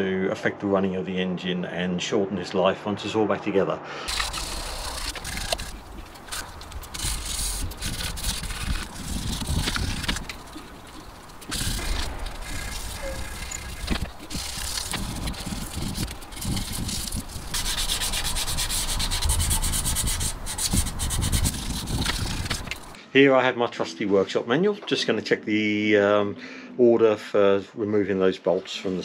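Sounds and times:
abrasive pad scrubbing metal: 4.1s - 23.0s.

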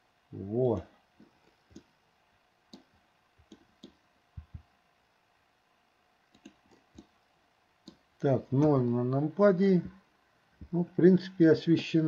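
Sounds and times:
computer keys and mouse clicks: 2.7s - 4.7s, 6.3s - 7.2s.

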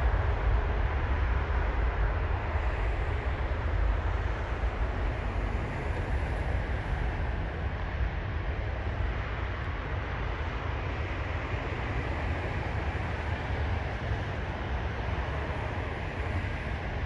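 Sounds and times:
distant jet engines at takeoff: 0.0s - 17.0s.

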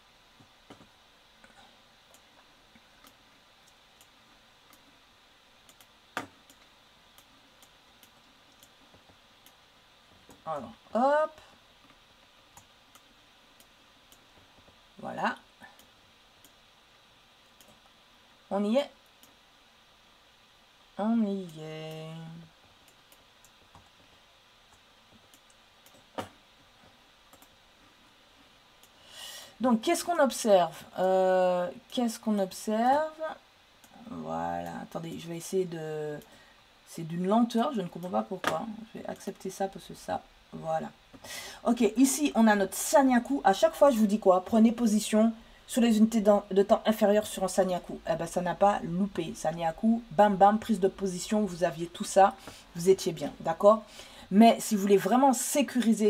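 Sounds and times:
computer mouse clicks: 5.6s - 9.6s, 11.8s - 14.3s, 19.0s - 19.4s, 24.7s - 26.3s, 27.3s - 27.6s.

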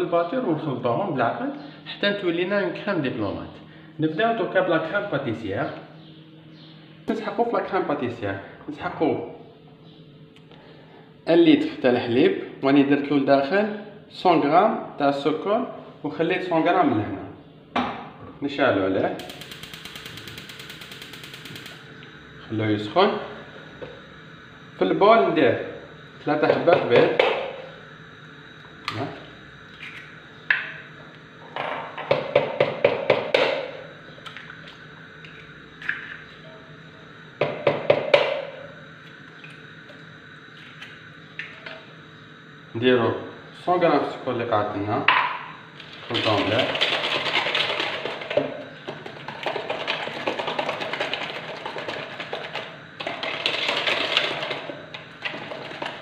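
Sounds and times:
eggs cracking against plastic jug: 46.1s - 56.0s.

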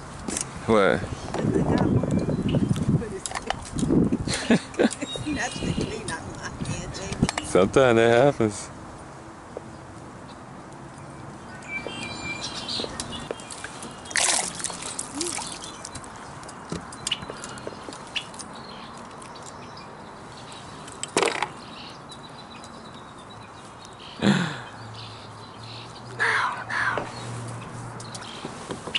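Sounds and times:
water splashing against kayak: 13.4s - 16.0s.

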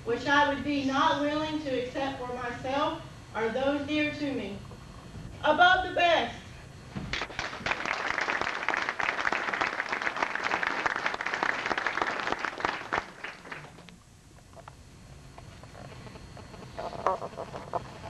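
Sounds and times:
audience applause: 7.1s - 13.8s.

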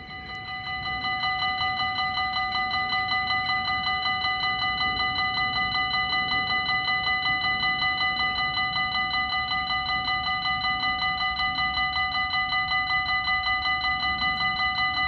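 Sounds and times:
level crossing warning bell: 0.0s - 15.0s.

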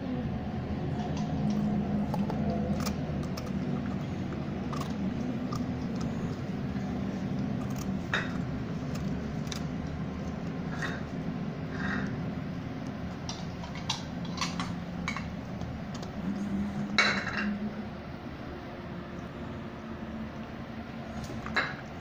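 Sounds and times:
steady low hum: 0.0s - 22.0s
puppy chewing crunchy cookie: 0.9s - 16.9s.

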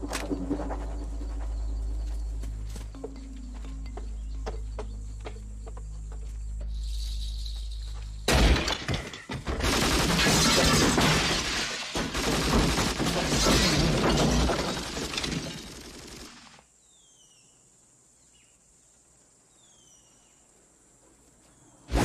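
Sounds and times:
wood shattering and crashing: 8.3s - 16.3s.

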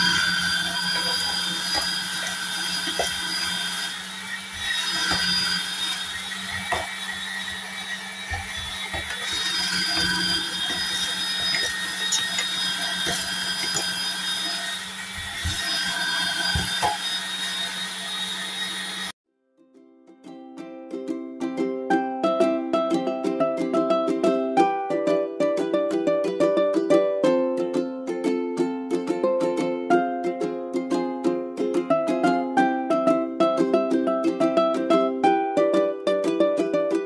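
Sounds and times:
potatoes grating: 0.0s - 19.1s
kitchen machine motor hum: 0.0s - 19.2s.

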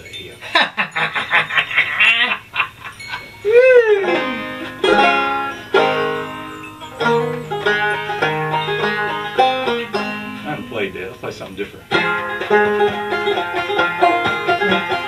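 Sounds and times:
banjo picking: 3.1s - 15.0s.

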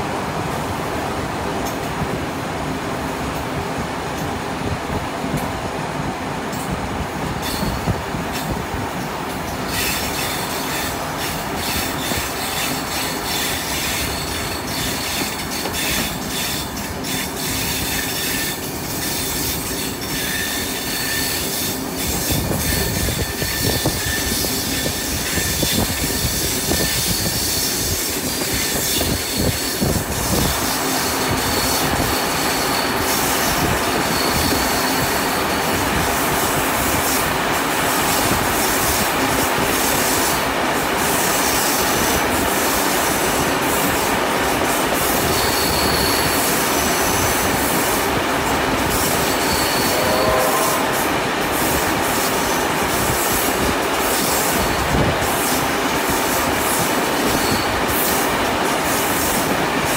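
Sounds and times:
train wheels clattering on rails: 1.4s - 2.2s, 6.4s - 59.9s
high wheel squeals: 7.4s - 7.9s, 9.7s - 36.0s, 45.1s - 47.2s, 48.9s - 51.2s, 57.2s - 57.9s.

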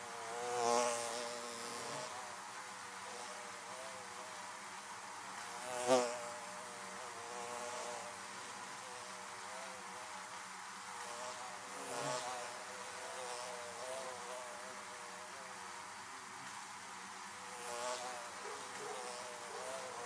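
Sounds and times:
close bee buzz: 0.0s - 4.4s, 5.5s - 10.3s, 10.9s - 15.6s, 17.4s - 20.0s.

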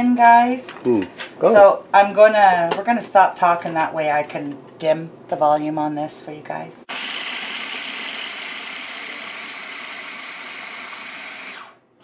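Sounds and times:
electric food chopper whirring: 6.9s - 11.9s.

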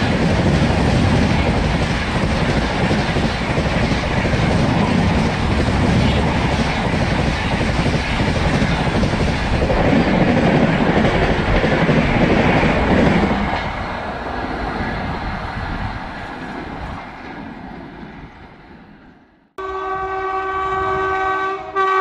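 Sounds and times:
train passing: 0.0s - 22.0s.

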